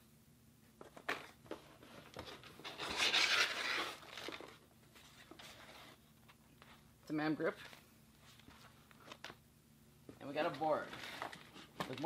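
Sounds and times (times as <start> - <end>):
packaging rustling: 0.9 - 6.0.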